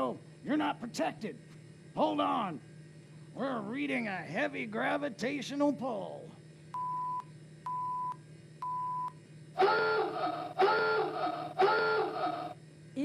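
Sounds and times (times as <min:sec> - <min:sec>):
buzzy alarm tones: 0:09.6 - 0:12.6.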